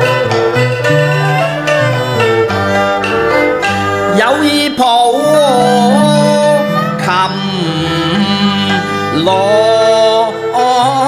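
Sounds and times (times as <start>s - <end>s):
opera singing with sliding pitch: 1.7s - 11.0s
ensemble accompaniment: 2.5s - 4.2s, 5.2s - 9.6s.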